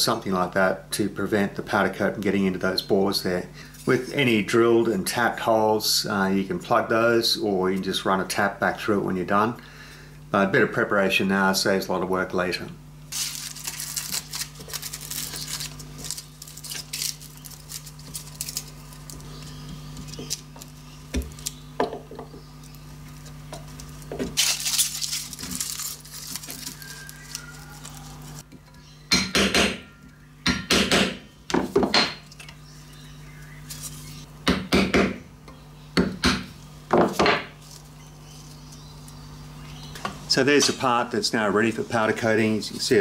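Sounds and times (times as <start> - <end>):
steady low hum: 0.0 - 43.0
aluminium foil crinkling: 13.1 - 21.6, 22.7 - 28.5, 37.6 - 39.2.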